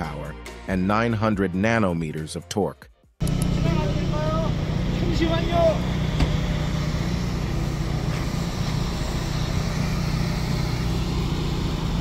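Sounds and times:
electric car low hum: 0:03.2 - 0:12.0.

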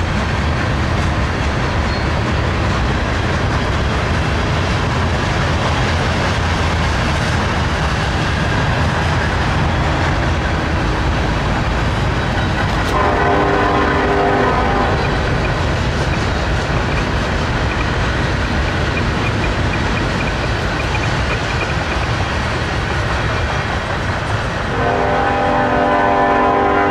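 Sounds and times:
freight train rumble: 0:00.0 - 0:26.9
locomotive horn: 0:12.8 - 0:15.4, 0:24.7 - 0:26.9
wheels clicking over rail joints: 0:14.0 - 0:24.7.

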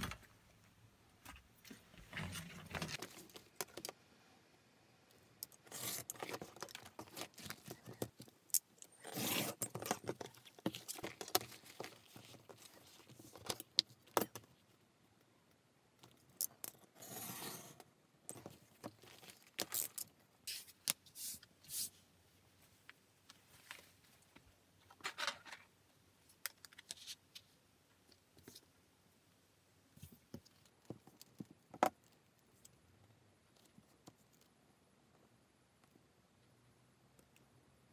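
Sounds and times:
knife cutting leather: 0:05.7 - 0:06.4, 0:09.0 - 0:10.0.

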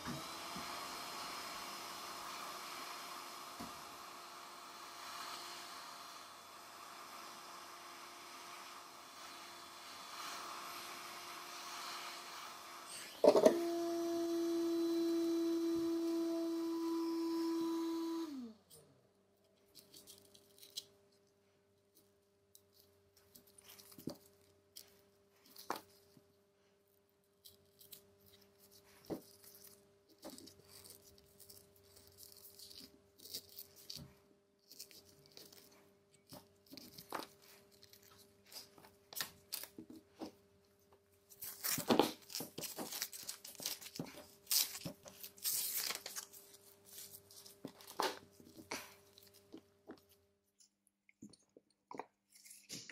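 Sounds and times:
crackling tearing noise: 0:41.3 - 0:49.5.

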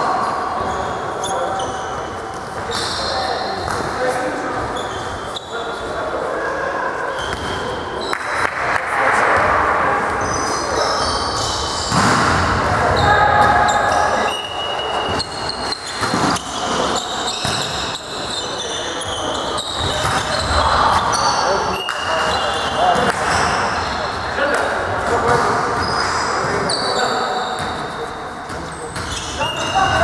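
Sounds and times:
voices and shouts echoing: 0:00.0 - 0:30.0
shoe squeaks: 0:00.2 - 0:06.0, 0:10.2 - 0:12.0, 0:13.0 - 0:24.2, 0:25.8 - 0:30.0
volleyball hits: 0:15.0 - 0:17.8, 0:19.8 - 0:21.2.

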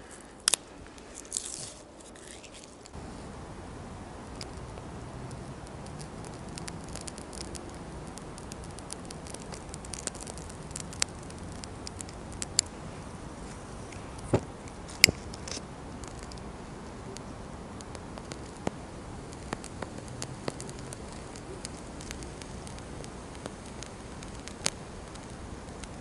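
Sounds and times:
sharp fire snaps: 0:00.0 - 0:26.0
tinder crackling and popping: 0:00.0 - 0:26.0.

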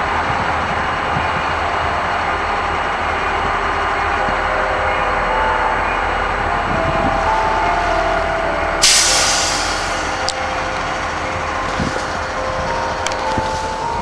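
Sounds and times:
diesel locomotives idling: 0:00.0 - 0:14.0
loud burst of hiss: 0:08.8 - 0:10.2.

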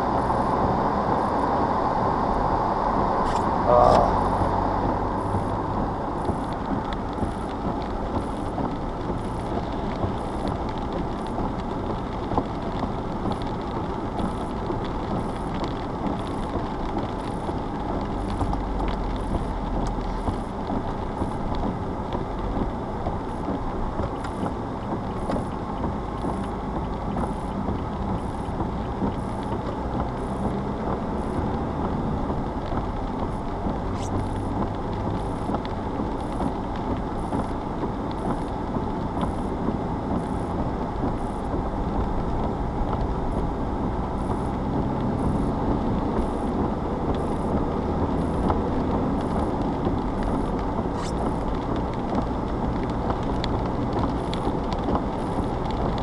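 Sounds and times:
vehicle engine and tyres on wet road: 0:00.0 - 0:56.0.

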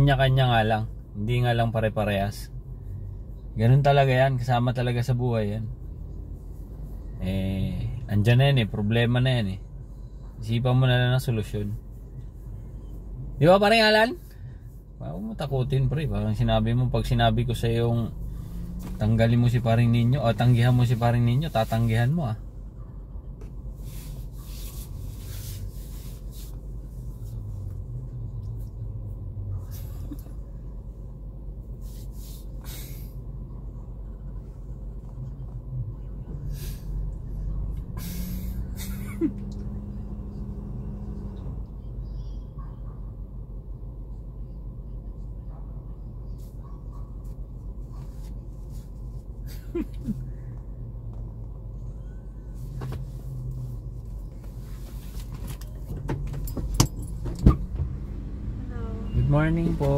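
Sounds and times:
car cabin engine and road drone: 0:00.0 - 0:59.9
car cabin rumble: 0:16.0 - 0:27.9, 0:49.7 - 0:59.9
short hisses: 0:38.0 - 0:38.6.

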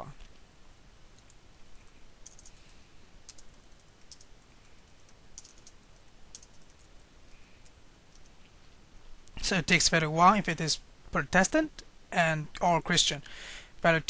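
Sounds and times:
keyboard typing clicks: 0:02.2 - 0:02.6, 0:03.2 - 0:06.9, 0:07.6 - 0:08.4.

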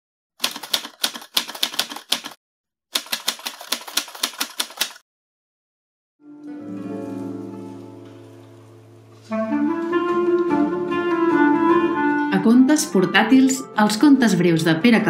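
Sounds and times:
typewriter keys clacking: 0:00.4 - 0:05.0
music with sustained note: 0:06.2 - 0:14.5.

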